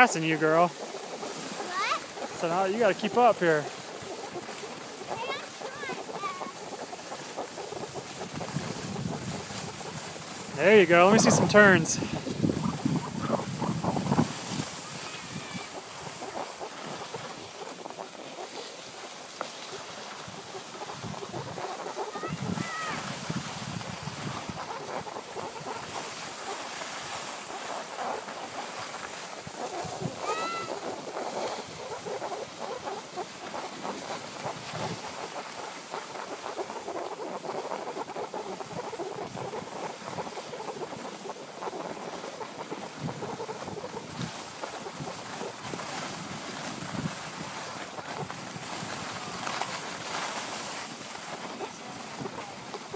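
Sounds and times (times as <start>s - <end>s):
wind buffeting microphone: 0.0s - 19.1s, 20.1s - 27.7s, 29.1s - 35.4s, 36.0s - 52.9s
skis sliding over snow: 0.0s - 52.9s.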